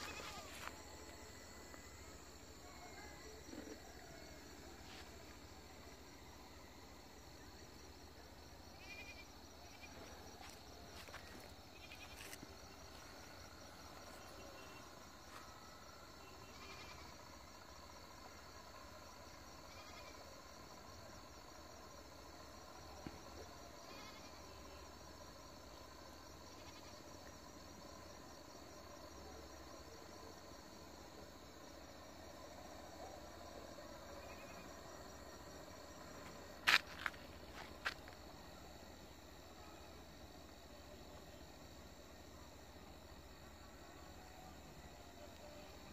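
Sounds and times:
insects trilling: 0.0s - 45.9s.

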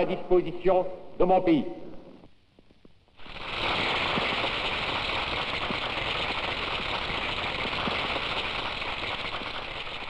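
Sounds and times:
steady applause: 3.2s - 10.0s.

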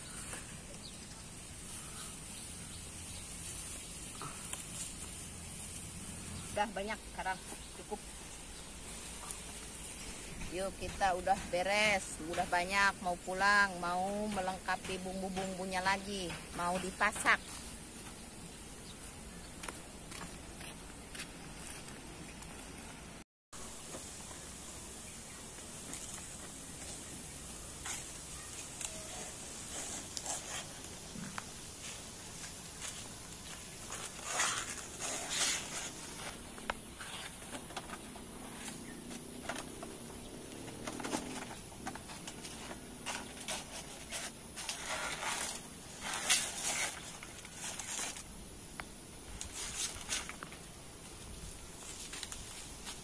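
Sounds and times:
leaf crackling: 0.0s - 10.4s, 23.6s - 53.0s
steady outdoor hiss: 0.0s - 53.0s
banana leaf rustling: 25.5s - 48.5s, 49.2s - 53.0s.

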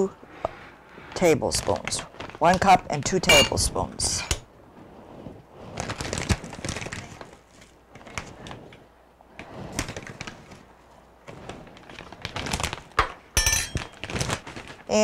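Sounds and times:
plastic bag rustling: 5.6s - 8.6s, 9.6s - 15.0s.

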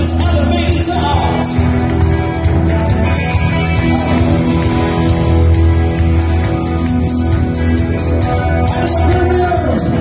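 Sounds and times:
drums: 0.0s - 10.0s
electric guitar: 0.0s - 10.0s.

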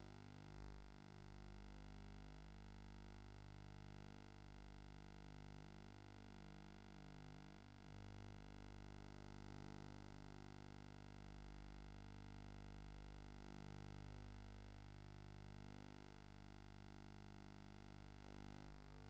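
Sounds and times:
faint electrical hum with hiss: 11.3s - 19.0s.

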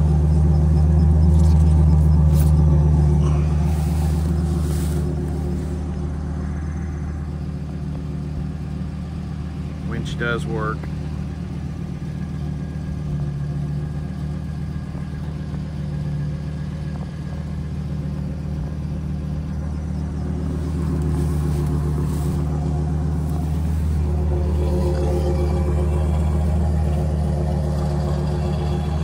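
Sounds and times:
truck engine idling: 0.0s - 29.0s.

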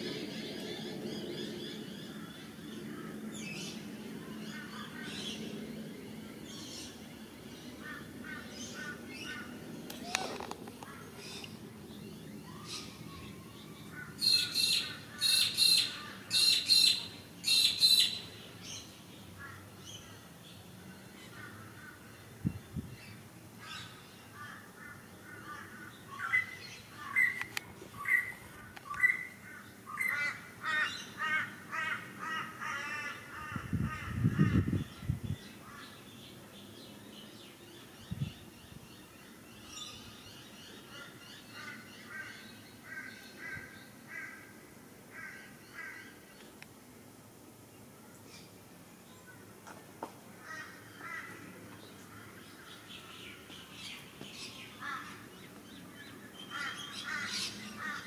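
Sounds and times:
crow cawing: 29.5s - 34.2s, 41.6s - 44.5s, 50.4s - 51.4s, 54.8s - 55.2s, 56.5s - 58.0s.

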